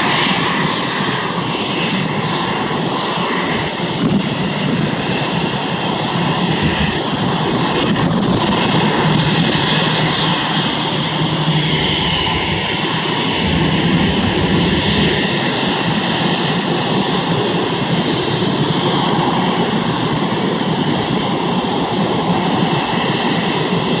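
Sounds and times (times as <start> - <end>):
jet engines whining: 4.6 - 17.0.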